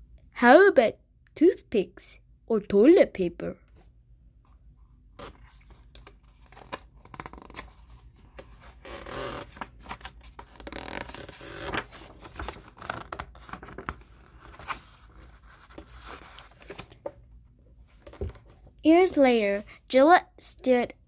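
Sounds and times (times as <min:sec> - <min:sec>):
paper pages rustling: 0:05.2 - 0:17.2.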